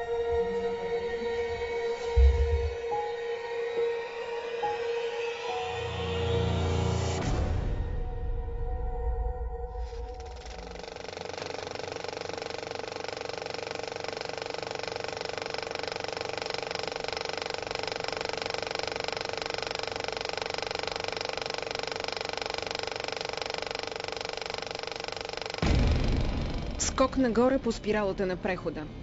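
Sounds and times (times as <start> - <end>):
drone of held tones: 0.0 - 14.5
fast mechanical ticking: 9.8 - 27.3.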